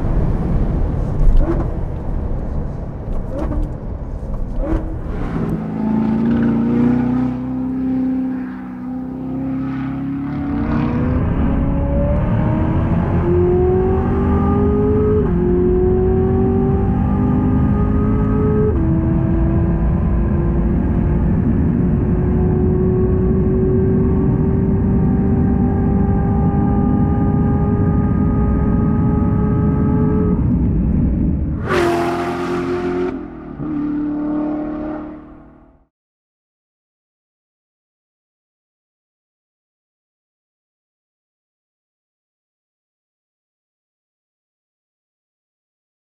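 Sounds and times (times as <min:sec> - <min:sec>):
car engine accelerating: 0:00.0 - 0:35.9
car passing close by: 0:04.6 - 0:11.5.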